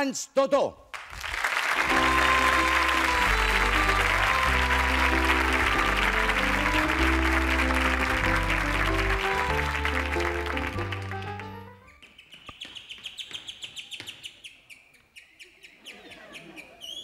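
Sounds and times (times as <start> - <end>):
audience clapping: 0.9 - 11.8
band music with bass line: 1.8 - 11.8.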